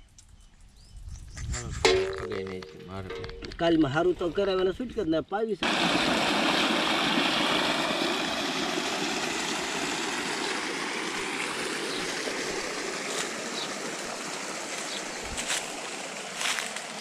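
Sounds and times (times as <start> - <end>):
flowing water rushing: 5.6 - 17.0.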